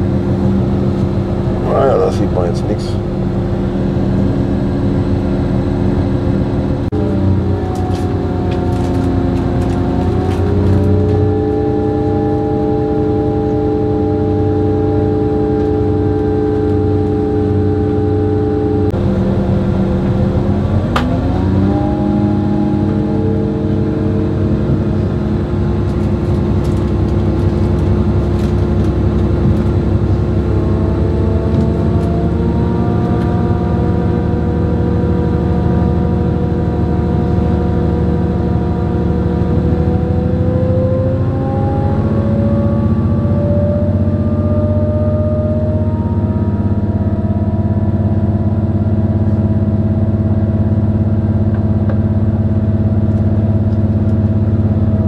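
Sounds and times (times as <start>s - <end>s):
diesel railcar engine running: 0.0s - 55.0s.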